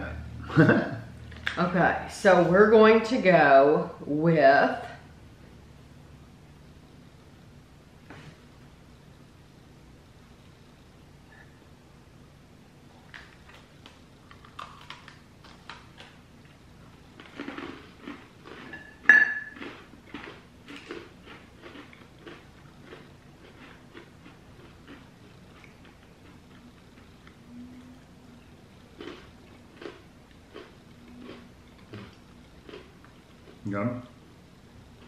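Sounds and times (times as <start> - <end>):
cookies crunching: 12.9 - 27.4, 28.3 - 33.6.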